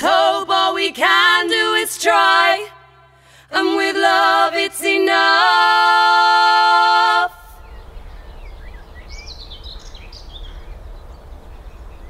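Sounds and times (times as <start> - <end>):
low outdoor rumble: 0.0 - 12.0
birds chirping: 7.3 - 12.0.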